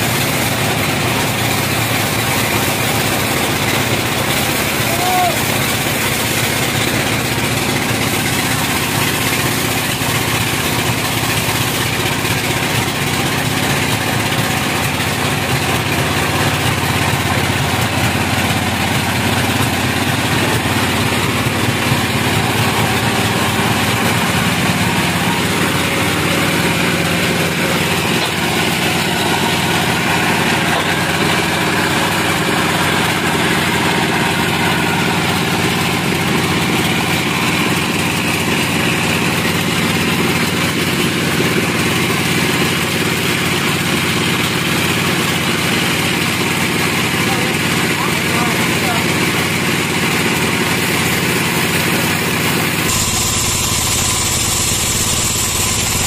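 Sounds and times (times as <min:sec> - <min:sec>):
band saw cutting wood: 0:00.0 - 0:42.2, 0:52.0 - 0:56.0
sawmill power unit drone: 0:00.0 - 0:56.0.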